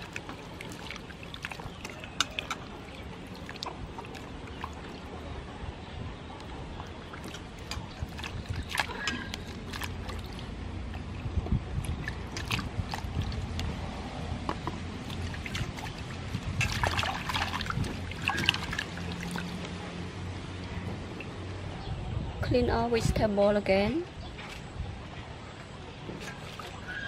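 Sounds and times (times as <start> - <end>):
water dripping: 0.0 - 5.2, 6.4 - 13.8, 14.4 - 19.8
water sloshing in a bowl: 0.0 - 21.6, 24.1 - 27.0.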